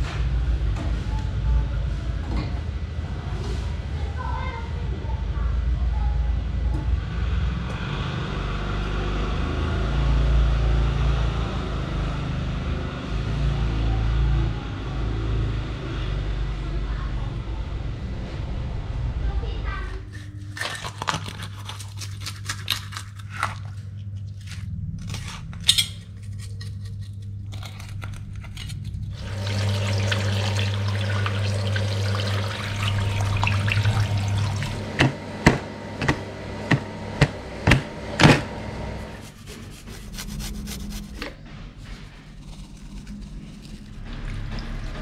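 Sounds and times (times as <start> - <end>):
knife scraping fish: 20.0 - 29.1, 39.0 - 44.4
water running and splashing: 29.2 - 35.0
sharp knocks: 35.0 - 38.5.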